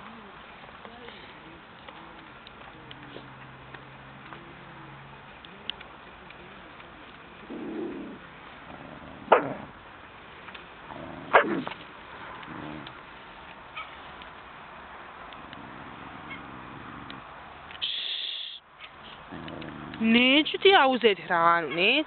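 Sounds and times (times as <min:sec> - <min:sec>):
dog growling: 0:07.4 - 0:09.8, 0:10.9 - 0:11.8, 0:12.4 - 0:13.0, 0:15.4 - 0:17.3, 0:19.3 - 0:20.1
dog barking: 0:09.3 - 0:09.6, 0:11.3 - 0:11.7.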